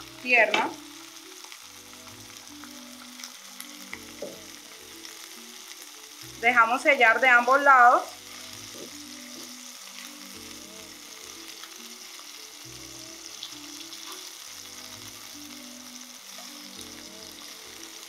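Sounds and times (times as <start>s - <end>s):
fish sizzling in a frying pan: 0.0s - 18.0s
soft background music: 0.0s - 18.0s.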